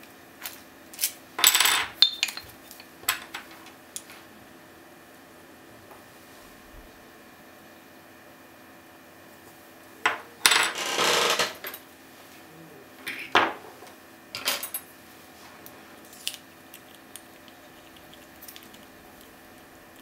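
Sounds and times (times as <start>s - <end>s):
metal tools clattering on wood: 1.4s - 3.6s, 10.1s - 11.9s, 14.3s - 14.8s.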